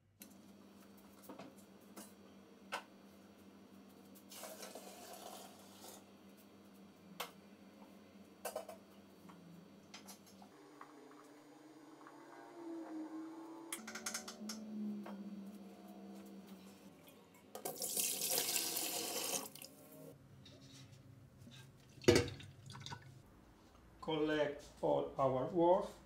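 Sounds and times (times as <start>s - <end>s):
hot water pouring: 4.3s - 6.0s, 17.6s - 19.8s.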